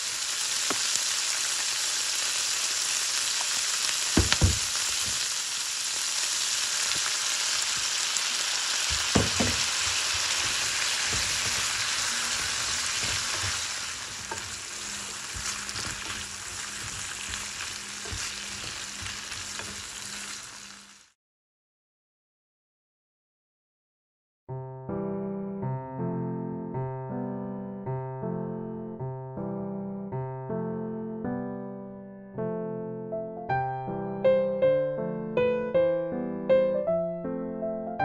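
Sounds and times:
meat and onion sizzling in a pan: 0.0s - 21.2s.

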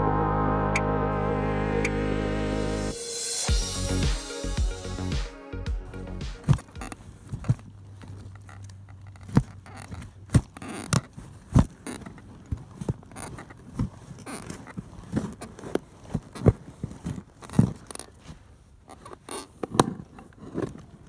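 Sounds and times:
boot pressing spade: 6.4s - 21.0s.

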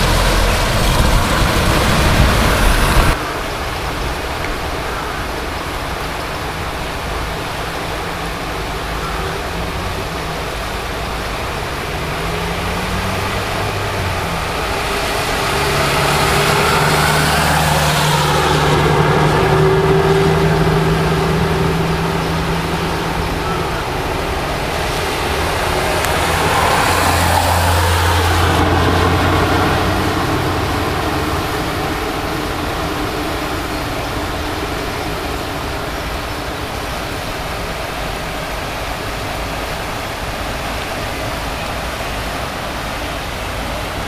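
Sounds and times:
low rumble: 0.0s - 3.2s
vehicle engine humming: 0.0s - 5.1s, 5.8s - 44.0s
river rushing: 0.0s - 44.0s
road traffic: 0.0s - 44.0s.

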